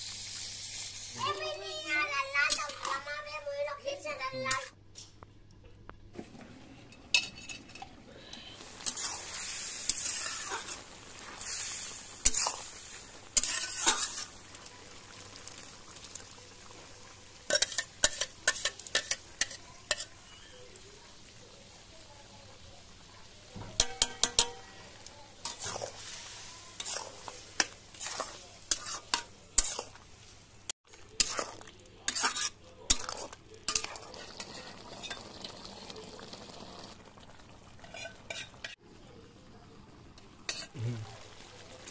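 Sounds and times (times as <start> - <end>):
meat sizzling in oil: 0.0 - 2.8, 8.6 - 38.8
metal spatula scraping a pan: 7.1 - 14.4, 17.5 - 20.6, 23.8 - 30.0, 31.0 - 35.2, 37.8 - 38.8, 40.5 - 40.8.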